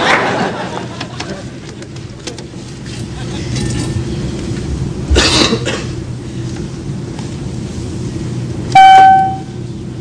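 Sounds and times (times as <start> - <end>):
aircraft cabin hum: 0.0 - 10.0
call-button chime ding: 8.8 - 9.5.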